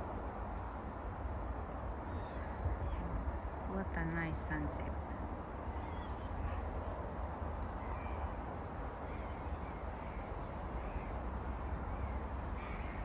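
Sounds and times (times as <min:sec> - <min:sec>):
wind rumble on microphone: 0:00.0 - 0:13.0
distant crow-like caws: 0:07.7 - 0:13.0.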